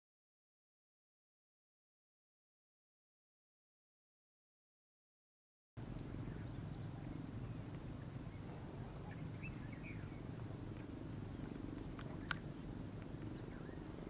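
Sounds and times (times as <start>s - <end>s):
faint bird chirps: 5.9s - 14.0s.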